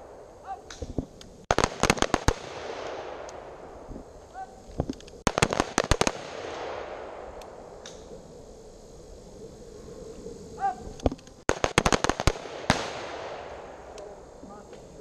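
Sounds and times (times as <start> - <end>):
rifle gunshots with echo: 1.5 - 3.9, 5.3 - 7.6, 11.5 - 14.0.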